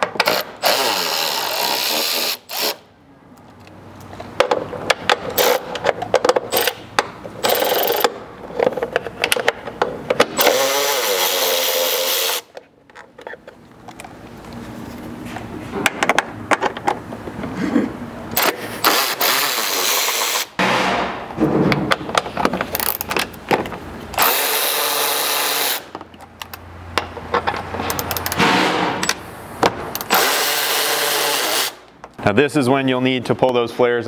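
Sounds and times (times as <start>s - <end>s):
electric ratchet motor whirring: 0.2s - 2.8s, 7.4s - 8.1s, 10.4s - 12.5s, 18.4s - 20.5s, 24.2s - 25.9s, 30.0s - 31.8s.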